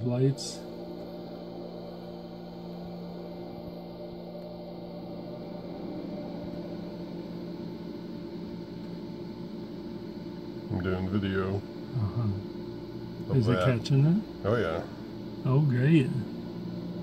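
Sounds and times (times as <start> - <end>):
machine humming with held tones: 0.0 - 17.0.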